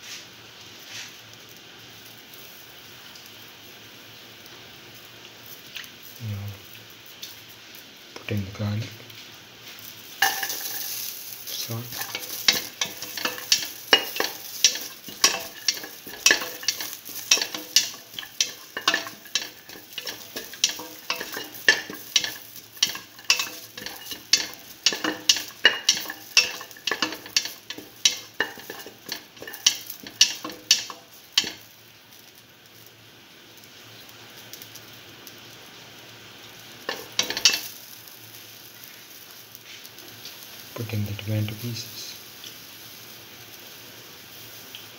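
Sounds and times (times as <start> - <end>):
food sizzling in oil: 0.0 - 44.9
utensil knocking and scraping pot: 10.2 - 11.0, 11.8 - 31.6, 36.9 - 37.7.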